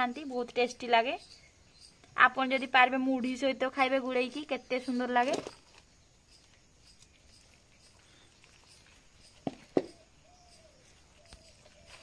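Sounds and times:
hands handling fruit: 5.1 - 10.1.

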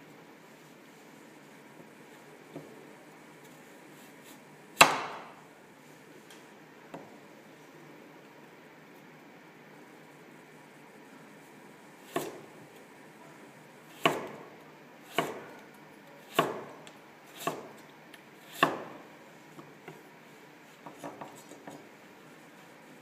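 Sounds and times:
knife chopping on wooden board: 4.8 - 5.4, 12.2 - 12.4, 14.0 - 14.4, 15.1 - 15.6, 16.3 - 16.7, 17.4 - 17.7, 18.5 - 19.0.

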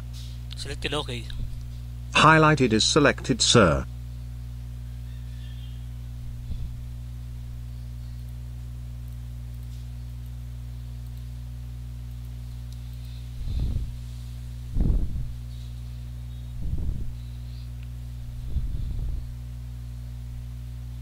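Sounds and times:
low electrical hum: 0.0 - 21.0
soft low thumps: 14.7 - 15.4.

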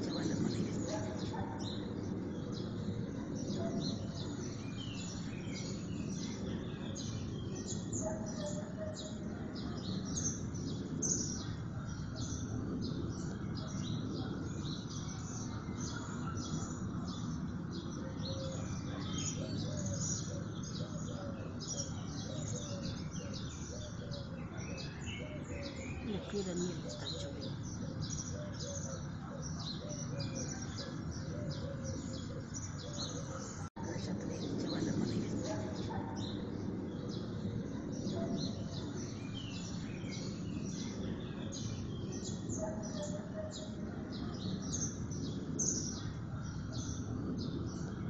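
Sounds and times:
small birds chirping: 0.0 - 48.0.

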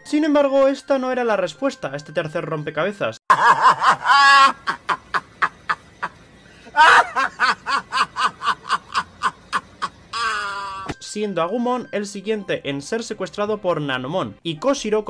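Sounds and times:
man laughing hard: 3.3 - 10.9.

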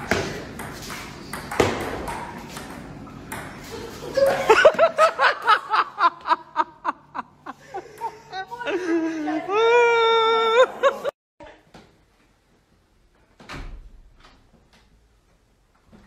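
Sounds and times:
person laughing rhythmically: 3.7 - 9.7, 10.3 - 11.2.

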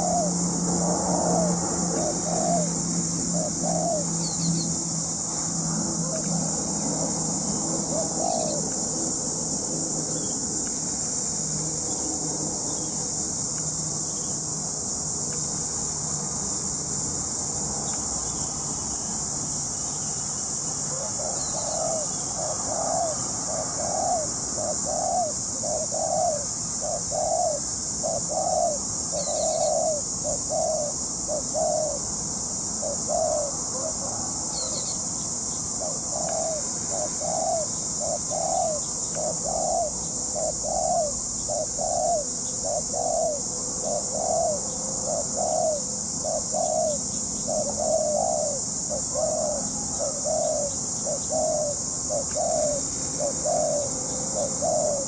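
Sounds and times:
dove cooing: 0.0 - 4.7, 5.9 - 10.4, 20.9 - 32.1, 32.8 - 34.9, 35.8 - 55.0.

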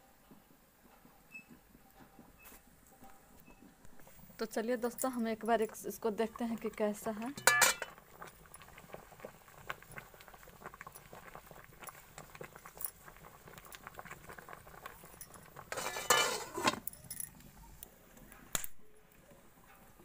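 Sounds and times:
wood fire crackling: 1.6 - 19.6
metal lid clattering: 7.3 - 8.0, 15.7 - 16.9.

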